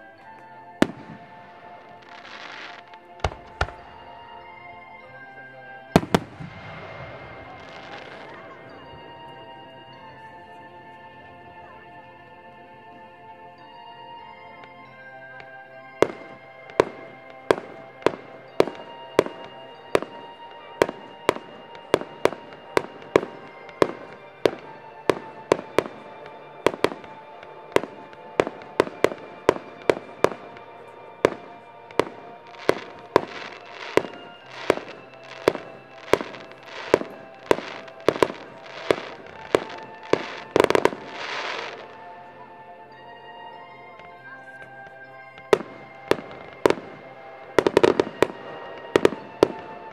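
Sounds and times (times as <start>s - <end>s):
background music: 0.0s - 49.9s
fireworks bangs: 0.8s - 4.3s, 5.8s - 9.5s, 16.0s - 42.1s, 45.3s - 49.9s.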